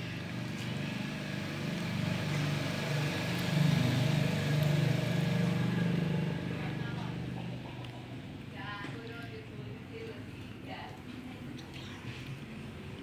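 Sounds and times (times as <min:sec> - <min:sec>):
vehicle engine humming: 0:00.0 - 0:08.6.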